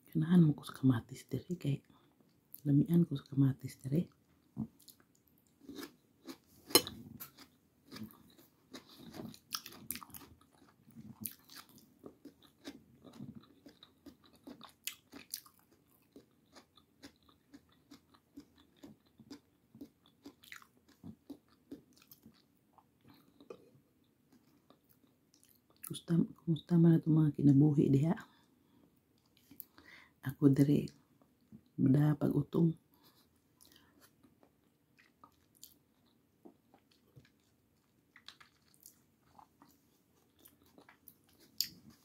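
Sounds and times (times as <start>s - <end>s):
person chewing tomato: 4.0s - 26.0s, 33.0s - 42.0s.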